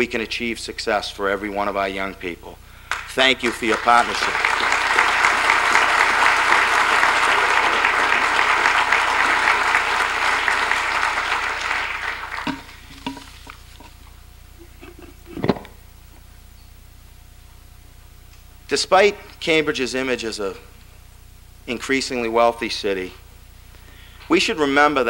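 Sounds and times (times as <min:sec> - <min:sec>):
audience applauding: 0:02.9 - 0:13.2.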